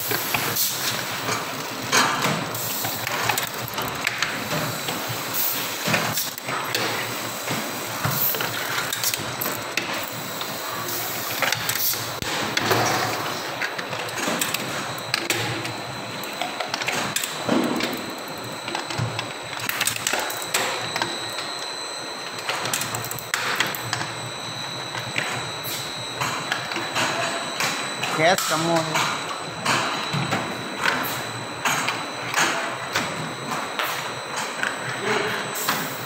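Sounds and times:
machine clattering and clicking: 0.0s - 10.1s, 11.4s - 21.5s.

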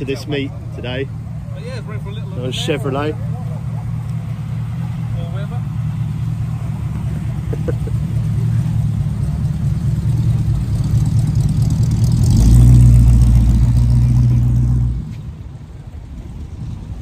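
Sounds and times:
pickup truck engine running: 2.7s - 15.0s.

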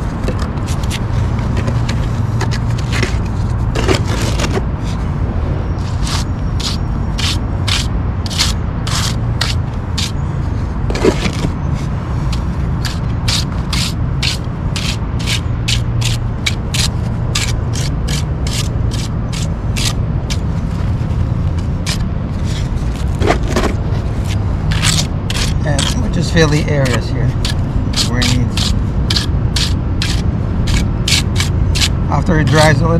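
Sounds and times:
steady low rumble: 0.0s - 32.9s
trowel scraping wet concrete: 5.9s - 10.1s, 12.8s - 20.0s, 24.2s - 32.8s.

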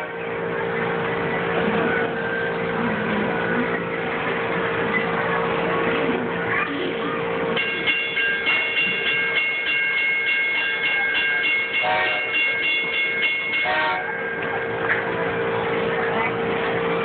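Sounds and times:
crossing signal bell ringing: 7.6s - 15.9s
train whistle toots: 11.8s - 12.4s, 13.6s - 14.1s.

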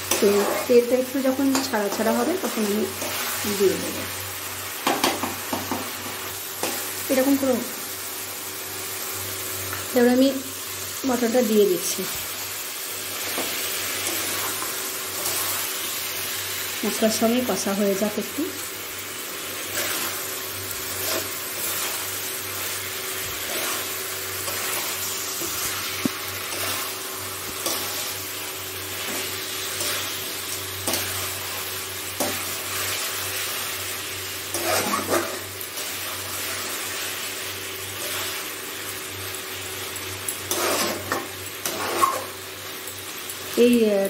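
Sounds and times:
meat sizzling in pan: 0.0s - 44.0s
spatula knocking pan: 4.8s - 5.9s
metal spatula scraping pan: 34.5s - 35.5s, 40.5s - 42.3s.

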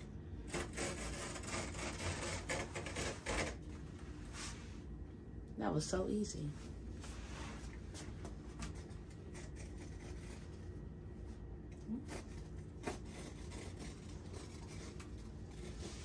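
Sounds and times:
blade cutting cloth: 0.5s - 3.6s, 11.9s - 16.0s.

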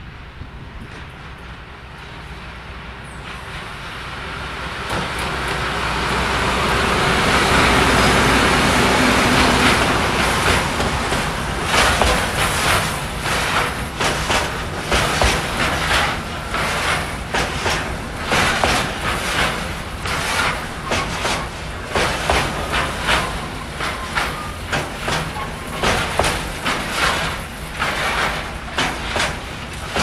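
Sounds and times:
train running: 0.0s - 30.0s
train wheels clattering over rail joints: 0.6s - 30.0s.

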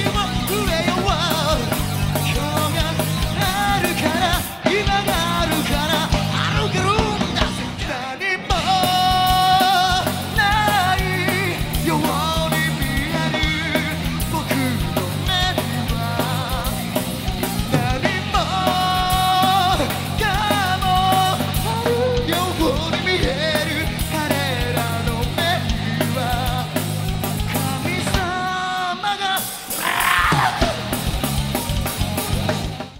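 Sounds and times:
person singing lead vocal: 0.0s - 31.1s
bass guitar: 0.0s - 32.9s
distorted electric guitars: 0.0s - 32.9s
drums: 0.0s - 32.9s.

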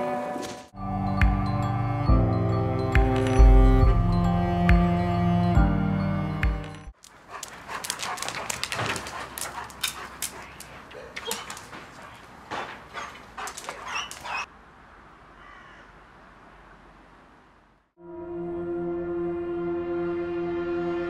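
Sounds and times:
dog barking: 7.3s - 14.5s
dog whimpering: 9.6s - 11.7s, 13.0s - 14.5s.

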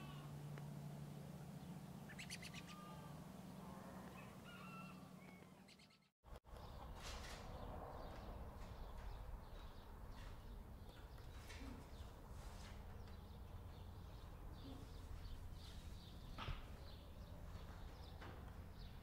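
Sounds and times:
bird chirps: 2.0s - 2.9s, 4.2s - 6.9s.

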